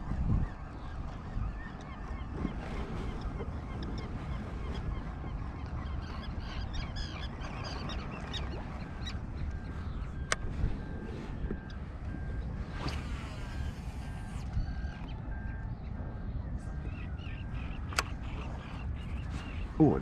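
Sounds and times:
birds calling over water: 0:00.0 - 0:20.0
wind rumble on microphone: 0:00.0 - 0:20.0
sharp click: 0:17.9 - 0:18.1.

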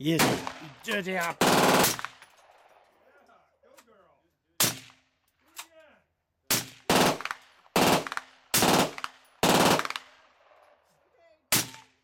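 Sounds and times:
suppressed rifle rapid fire: 0:01.4 - 0:02.2, 0:06.5 - 0:10.3.

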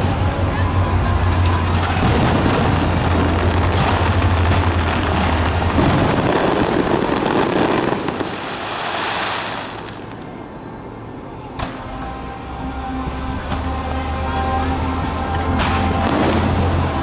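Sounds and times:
fireworks crackling: 0:00.9 - 0:10.4, 0:13.5 - 0:17.0
fireworks booming: 0:01.3 - 0:10.3, 0:15.4 - 0:17.0.

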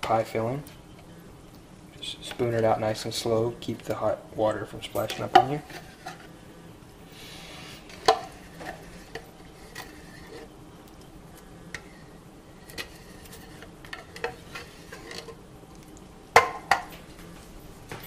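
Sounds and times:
plastic spoon scraping tin can: 0:07.8 - 0:10.5, 0:12.6 - 0:15.4.

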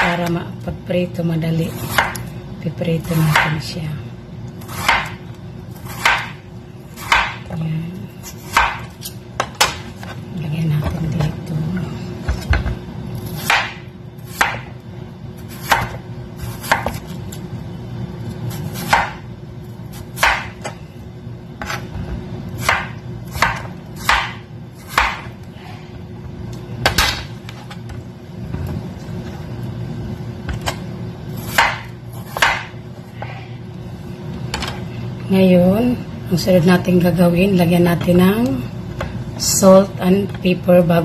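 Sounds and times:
steady low hum: 0:00.0 - 0:41.0
knife slicing potatoes on board: 0:04.6 - 0:05.2, 0:05.8 - 0:06.4, 0:07.0 - 0:07.4, 0:08.3 - 0:10.1, 0:13.3 - 0:14.7, 0:15.4 - 0:17.2, 0:22.6 - 0:25.3, 0:31.4 - 0:33.4.

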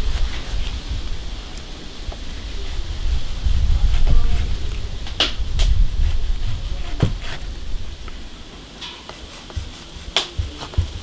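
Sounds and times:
low rumble: 0:00.0 - 0:08.7.

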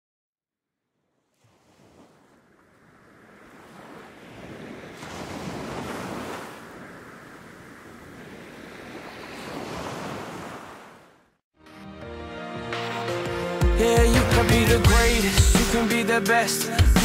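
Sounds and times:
ocean waves breaking: 0:01.2 - 0:11.4.

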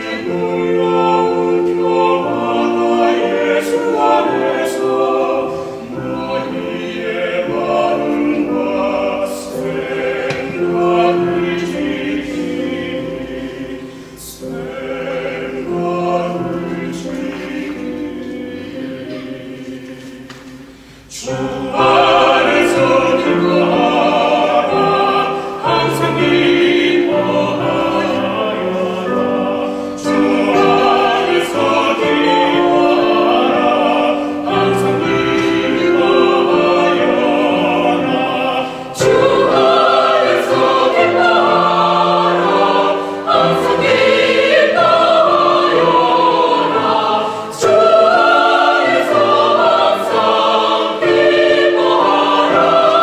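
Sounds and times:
mixed choir singing in harmony: 0:00.0 - 0:53.0.

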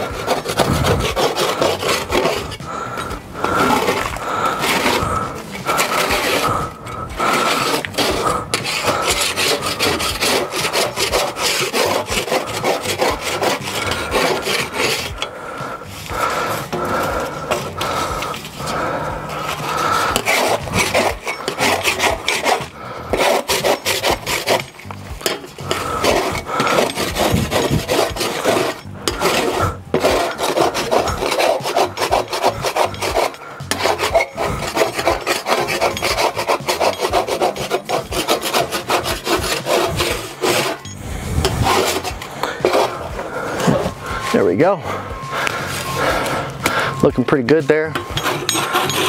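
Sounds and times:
metal scraper scraping grease: 0:00.0 - 0:49.0.

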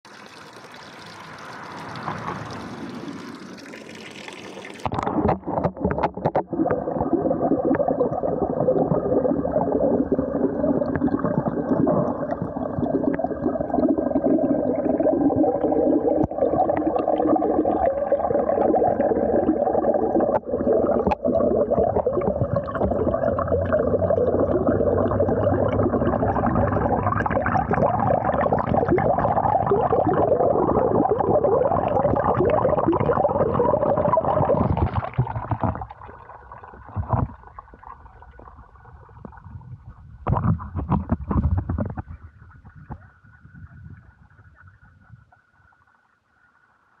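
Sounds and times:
fountain water splashing into basin: 0:00.0 - 0:35.6
underwater rumble and bubbling: 0:00.6 - 0:46.9.

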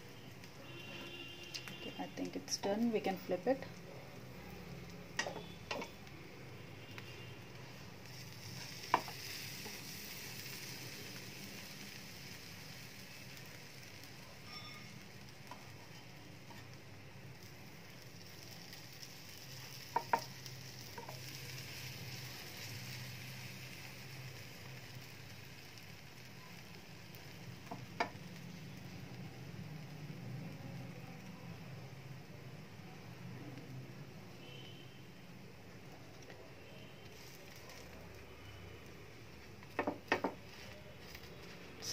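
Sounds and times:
bread sizzling in frying pan: 0:00.0 - 0:41.9
spatula tapping pan: 0:05.2 - 0:06.0, 0:19.9 - 0:21.3.

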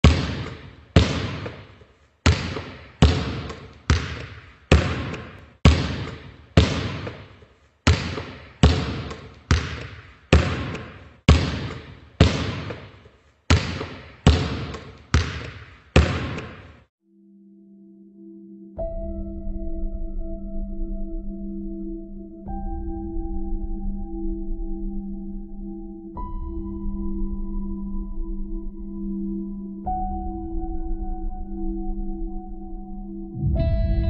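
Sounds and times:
echoing sharp knocks: 0:00.0 - 0:16.9.

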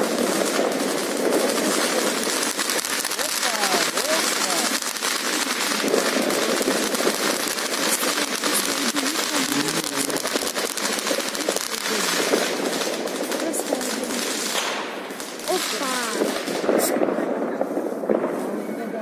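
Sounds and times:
fireworks crackling and popping: 0:00.0 - 0:19.0.

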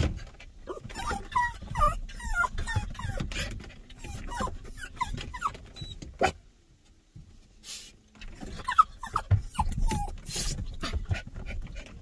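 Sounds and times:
dog whimpering: 0:00.7 - 0:06.0, 0:08.4 - 0:10.5.

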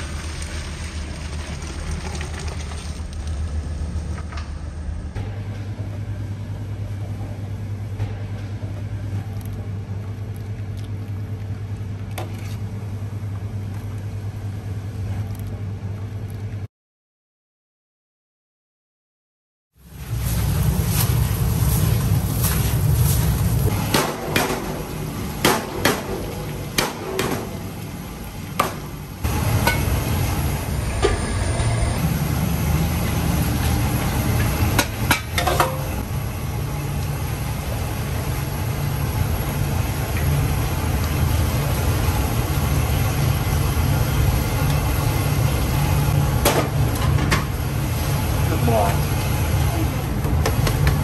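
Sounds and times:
steady low hum: 0:03.0 - 0:16.7, 0:19.8 - 0:51.0
metal pots clanking: 0:35.1 - 0:35.9.

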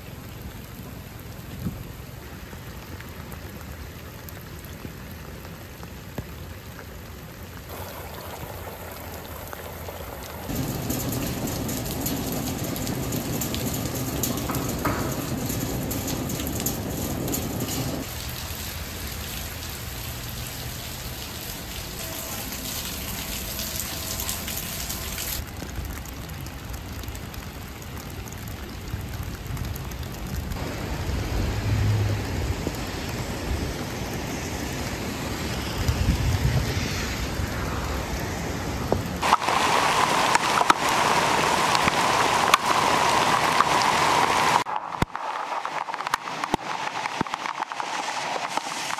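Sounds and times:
rushing water: 0:00.0 - 0:48.9
steady rain: 0:00.0 - 0:48.9
low rumble: 0:09.8 - 0:18.1.

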